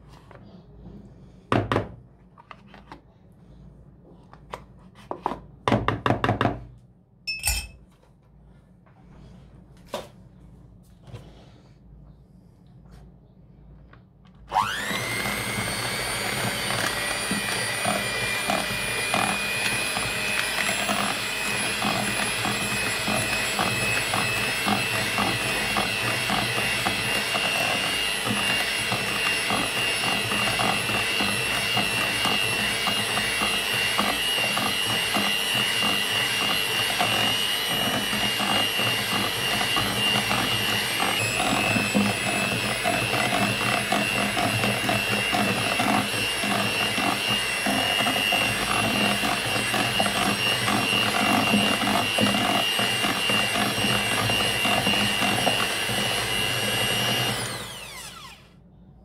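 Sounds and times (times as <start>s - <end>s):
electric hand mixer whining: 14.5s - 58.6s.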